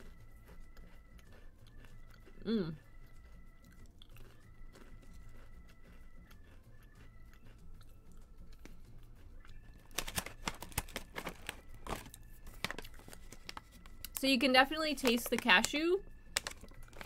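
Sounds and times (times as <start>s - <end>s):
chewing and crunching cookie: 0.0s - 17.0s
plastic snack bag crackling: 9.8s - 17.0s.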